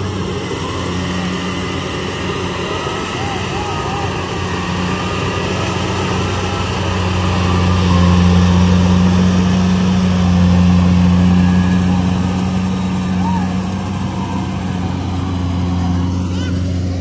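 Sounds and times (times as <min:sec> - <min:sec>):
diesel engine humming: 0:00.0 - 0:17.0.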